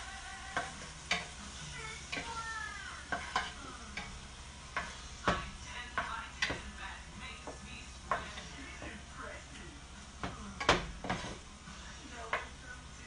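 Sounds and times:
food sizzling in frying pan: 0.0s - 13.0s
utensil scraping pan: 10.2s - 11.8s.

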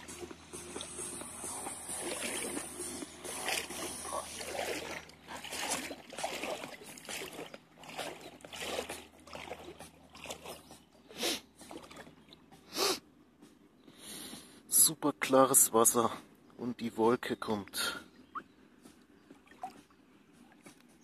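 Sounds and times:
shallow water splashing and lapping: 0.0s - 12.7s, 17.8s - 21.0s
loud water splashes: 1.5s - 10.6s.

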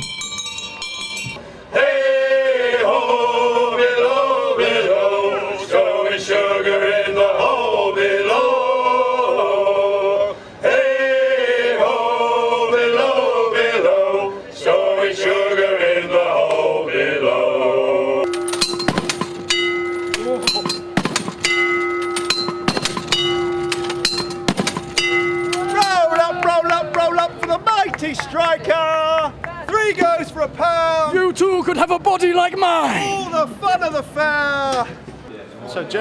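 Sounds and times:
steady ringing tone: 0.0s - 1.4s, 18.2s - 26.1s
men singing in harmony: 1.7s - 18.3s
sharp knocks: 18.3s - 26.0s.

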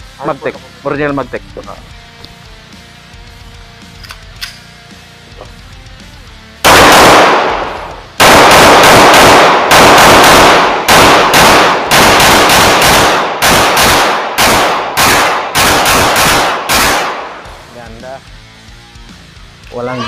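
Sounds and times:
pistol shots ringing: 6.7s - 17.5s.

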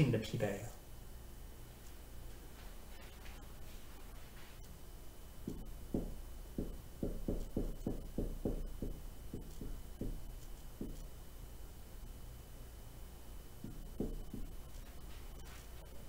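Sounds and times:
marker writing on whiteboard: 5.5s - 11.1s, 13.6s - 15.9s.

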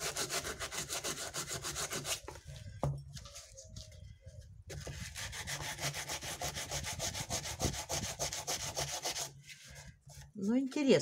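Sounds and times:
sandpaper rasping on cement: 0.0s - 2.4s, 4.7s - 10.2s.

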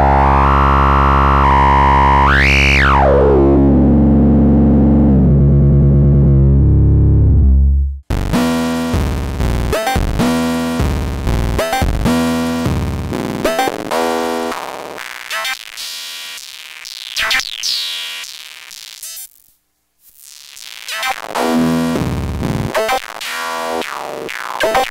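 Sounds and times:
synthesizer drone: 0.0s - 12.3s.

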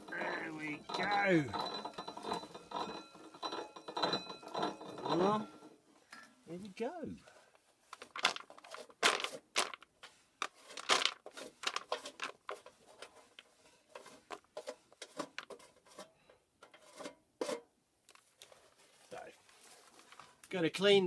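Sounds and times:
coffee beans rattling into bowl: 8.0s - 9.8s, 10.4s - 12.7s.

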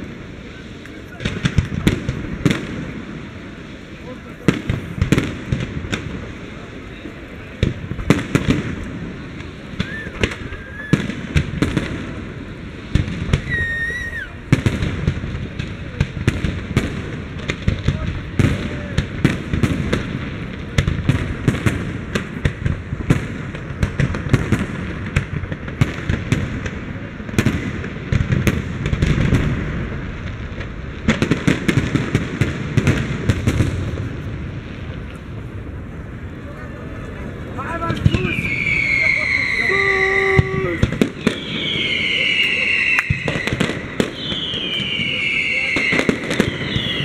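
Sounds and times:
fireworks bursts and bangs: 0.0s - 47.0s
firework whistles: 8.1s - 14.9s, 37.8s - 47.0s.

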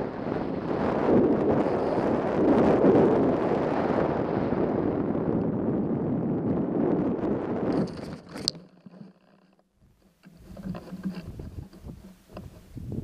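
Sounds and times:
airflow rushing over camera: 6.9s - 13.0s
glider sliding through grass: 10.2s - 12.8s.

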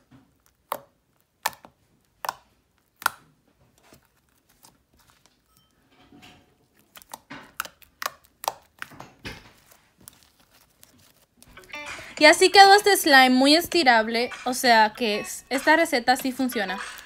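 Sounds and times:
slime clicking and popping: 0.0s - 3.3s, 6.8s - 9.4s.

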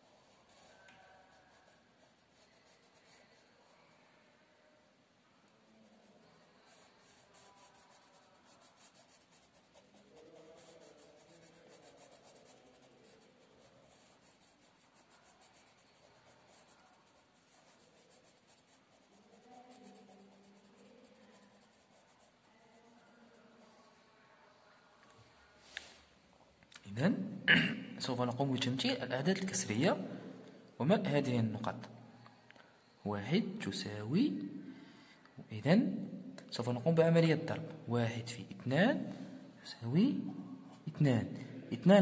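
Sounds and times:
marker scribbling on paper: 5.8s - 23.6s.

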